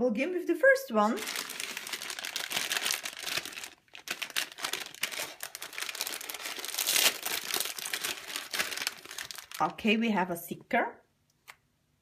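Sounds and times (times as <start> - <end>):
plastic bag crinkling and tearing: 1.1 - 9.8.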